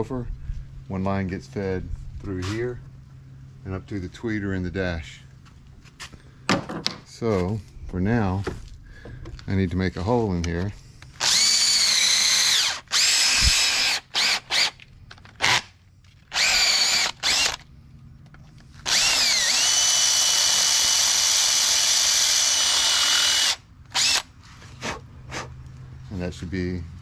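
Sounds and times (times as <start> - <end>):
cordless drill whining: 11.2 - 15.7, 16.3 - 17.6, 18.7 - 24.3.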